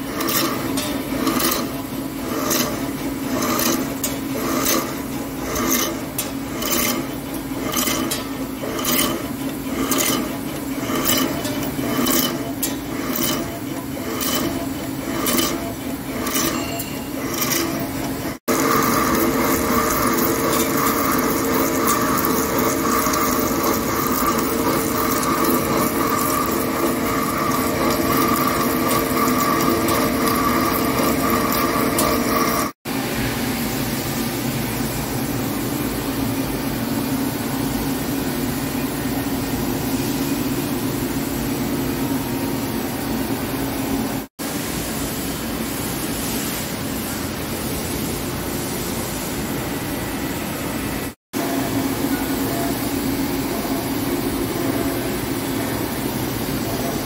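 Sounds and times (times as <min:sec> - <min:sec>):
lathe machining noise: 0:00.0 - 0:32.8, 0:50.8 - 0:57.0.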